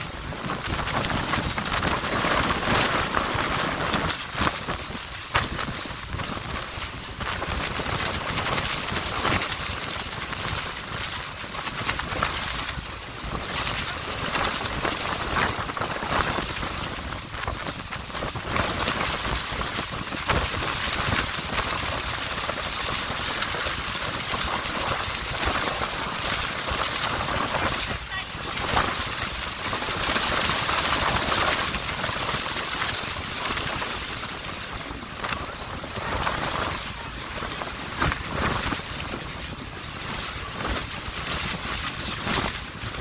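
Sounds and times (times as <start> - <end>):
water rushing past boat: 0.0 - 43.0
wind buffeting microphone: 0.0 - 43.0.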